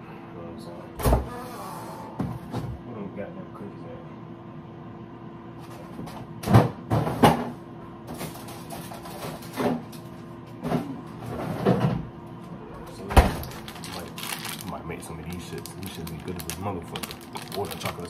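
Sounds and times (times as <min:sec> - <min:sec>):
refrigerator hum: 0:00.0 - 0:18.0
freezer door thud: 0:13.1 - 0:13.8
frozen packages knocking: 0:13.2 - 0:18.0.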